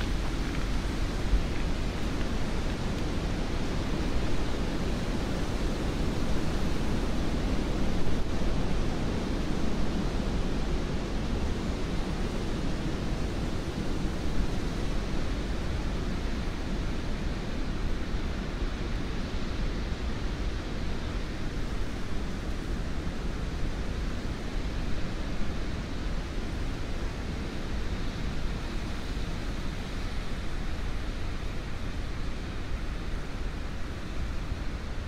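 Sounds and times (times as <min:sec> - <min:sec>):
wind in trees: 0:00.0 - 0:35.0.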